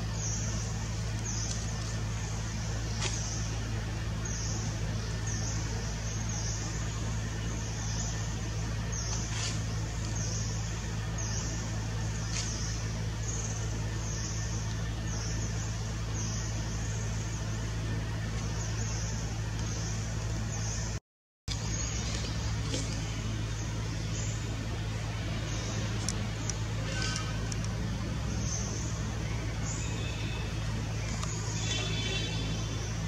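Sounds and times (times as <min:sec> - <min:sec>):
low motor-like hum: 0:00.0 - 0:33.0
faint clicks: 0:26.0 - 0:27.8.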